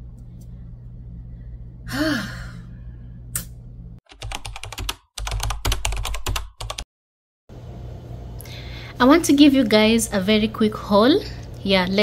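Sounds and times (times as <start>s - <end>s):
keyboard typing: 4.1s - 6.8s.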